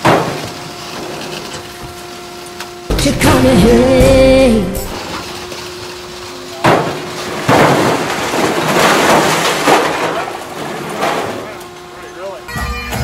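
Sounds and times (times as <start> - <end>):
background music: 2.9 - 5.0
glass bottles crashing into dumpster: 6.6 - 11.5.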